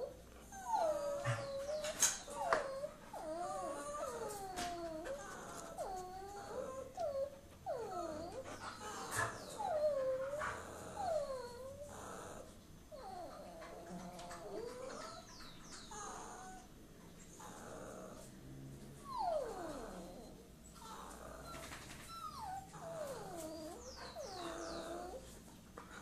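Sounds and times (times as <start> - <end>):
dog whining: 0.0 - 16.7, 17.4 - 18.3, 19.0 - 25.4.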